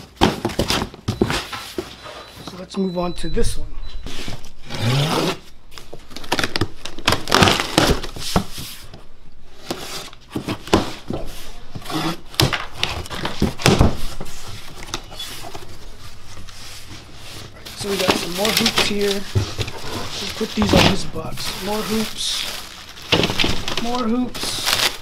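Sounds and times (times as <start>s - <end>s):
cardboard flaps scraping and creaking: 4.0s - 25.0s
cardboard rustles and knocks: 9.7s - 15.9s, 17.6s - 22.1s, 23.0s - 24.5s.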